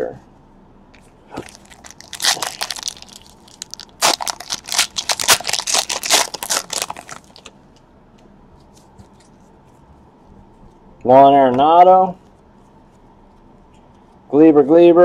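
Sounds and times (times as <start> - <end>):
foil wrapper tearing and crinkling: 1.4 - 7.5.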